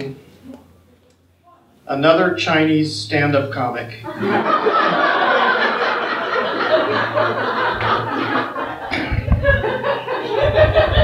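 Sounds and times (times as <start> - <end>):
audience laughing: 4.0 - 11.0.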